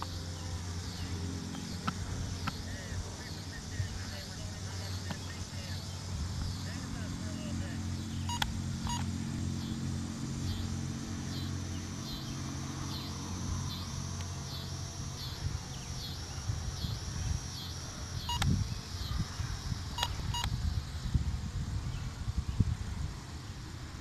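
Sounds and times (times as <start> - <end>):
drone propellers whining: 0.0 - 24.0
low hum: 0.0 - 24.0
wind rumble on microphone: 0.6 - 24.0
sharp ticks: 1.4 - 2.9, 8.2 - 9.1, 17.6 - 18.6.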